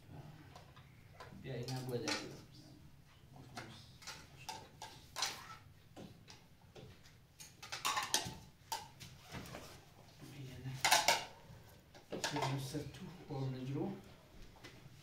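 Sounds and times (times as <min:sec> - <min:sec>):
plates and spoons clinking: 0:07.4 - 0:09.0, 0:10.8 - 0:11.4, 0:12.1 - 0:12.7.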